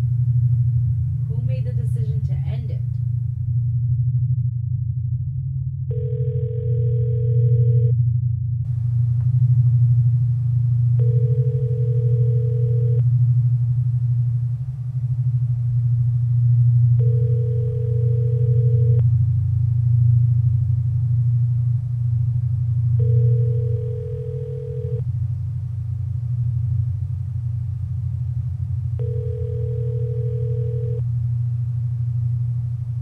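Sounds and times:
loud low hum: 0.0s - 33.0s
telephone ringback tone: 5.9s - 7.9s, 11.0s - 13.0s, 17.0s - 19.0s, 23.0s - 25.0s, 29.0s - 31.0s.

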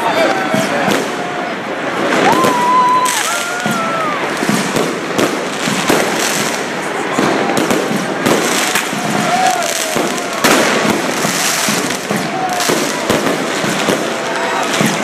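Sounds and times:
fireworks bangs and crackling: 0.0s - 15.0s.

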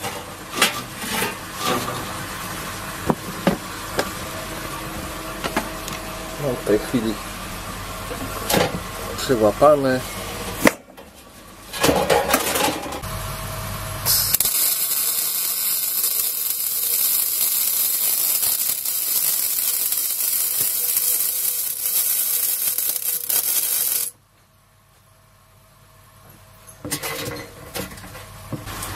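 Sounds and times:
welder arc crackling hiss: 14.1s - 24.1s.

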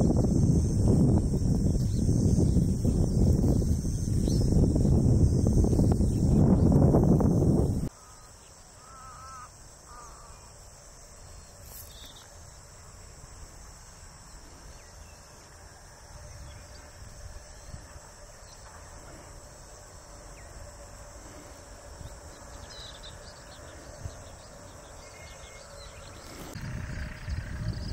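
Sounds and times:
low wind rumble: 0.0s - 7.9s, 12.3s - 27.9s
high insect drone: 0.0s - 27.9s
wavering bird calls: 7.9s - 10.6s.

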